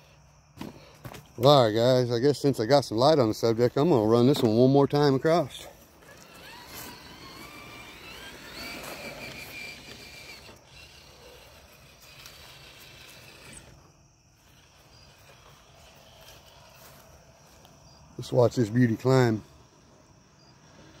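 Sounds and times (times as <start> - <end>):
small electric motor whining: 5.2 - 17.8, 18.8 - 21.0.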